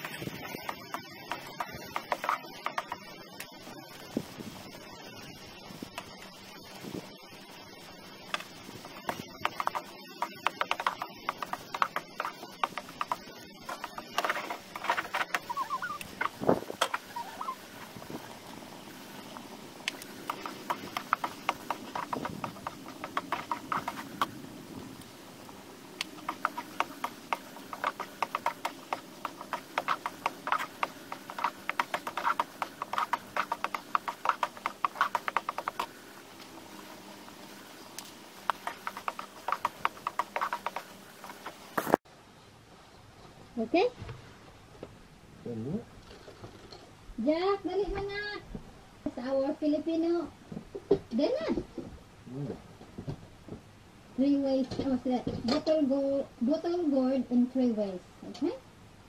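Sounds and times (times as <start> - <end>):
wooden spatula scraping a wok: 9.0 - 18.1, 20.0 - 24.4, 26.2 - 36.0, 38.4 - 42.0.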